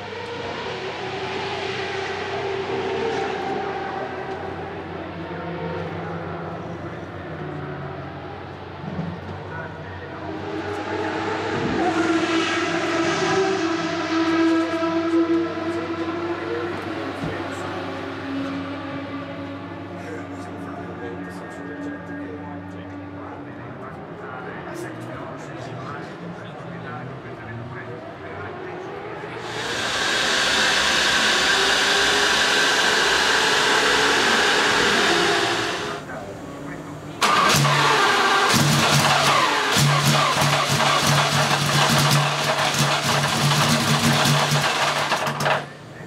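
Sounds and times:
rushing air hiss: 0:29.4 - 0:36.0
car engine idling: 0:29.4 - 0:46.0.

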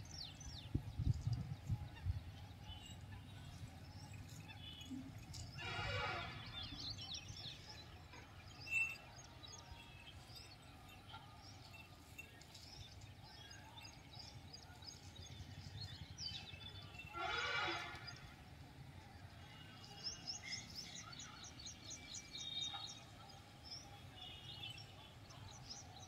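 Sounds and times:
birds chirping: 0:00.0 - 0:26.0.

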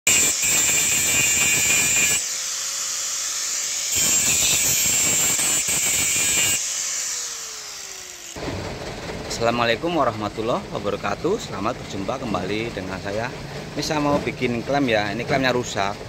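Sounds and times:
angle grinder grinding metal: 0:00.0 - 0:08.4
grinder motor spinning free: 0:00.1 - 0:08.4.

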